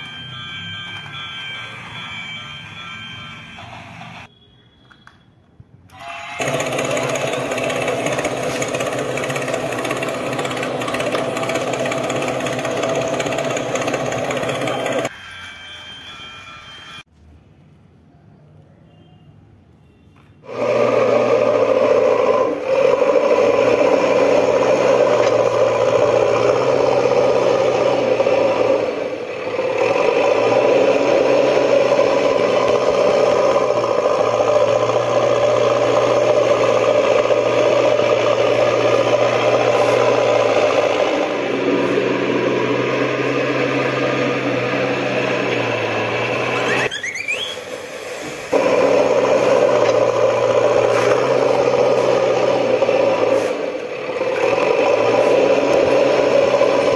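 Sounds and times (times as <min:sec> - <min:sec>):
engine-like whirring drone: 0:06.4 - 0:15.7, 0:20.4 - 0:56.9
short rising whistle: 0:46.5 - 0:47.8.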